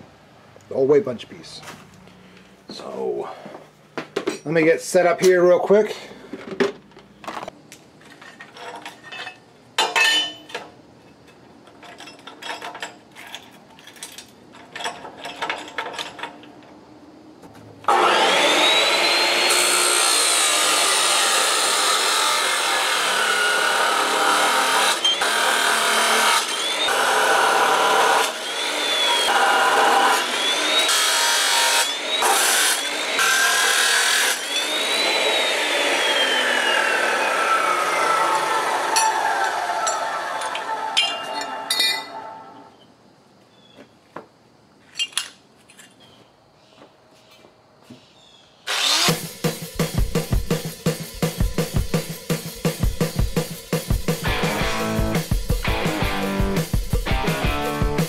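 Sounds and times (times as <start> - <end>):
chop saw grinding through steel: 17.9 - 42.3, 48.7 - 50.0.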